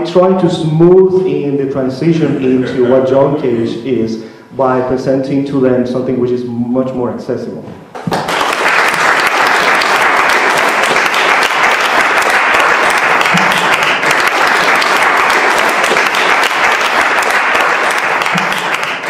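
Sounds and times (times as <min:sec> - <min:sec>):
audience applauding: 0:07.9 - 0:19.0.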